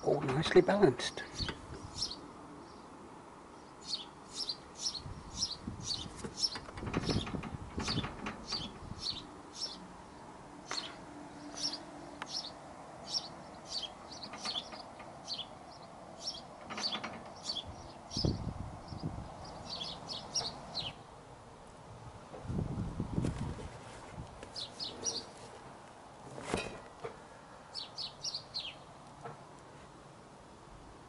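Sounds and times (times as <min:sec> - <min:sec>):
small bird chirping: 0:01.2 - 0:02.9, 0:03.6 - 0:09.9, 0:10.6 - 0:21.0, 0:24.5 - 0:25.4, 0:27.7 - 0:28.9.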